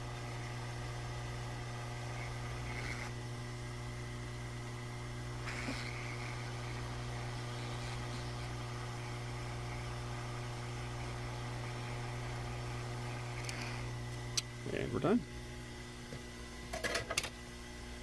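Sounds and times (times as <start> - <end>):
hot-air blower humming: 0.0 - 18.0.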